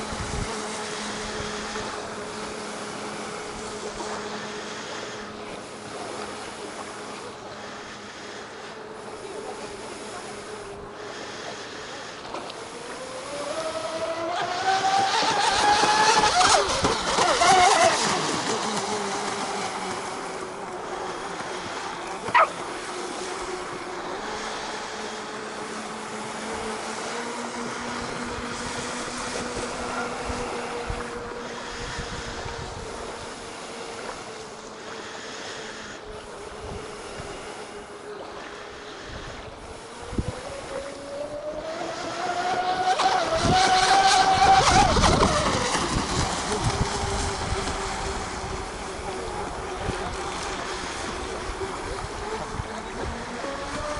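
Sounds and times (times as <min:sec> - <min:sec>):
lapping water: 0:00.0 - 0:41.1, 0:41.8 - 0:53.9
model boat motor whine: 0:00.0 - 0:53.9
wind hiss: 0:22.8 - 0:38.0.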